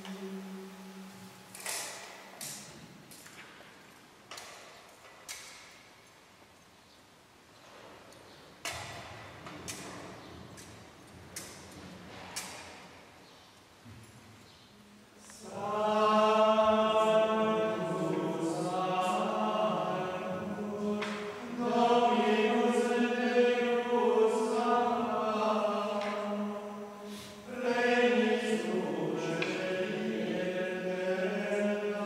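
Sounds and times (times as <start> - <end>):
men singing chant: 15.4 - 32.0.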